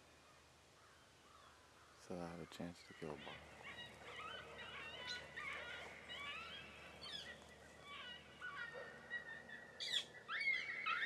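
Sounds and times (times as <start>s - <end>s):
coyotes yipping and howling: 2.6s - 11.0s.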